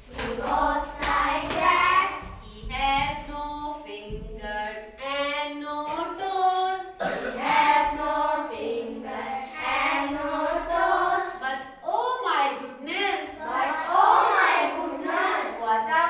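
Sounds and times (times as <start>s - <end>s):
woman singing along: 0.2s - 7.6s
children singing in chorus: 6.5s - 11.4s, 13.4s - 15.7s.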